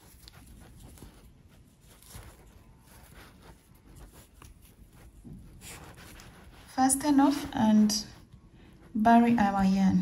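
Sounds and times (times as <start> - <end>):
yarn rustling and scratching: 0.0 - 7.6.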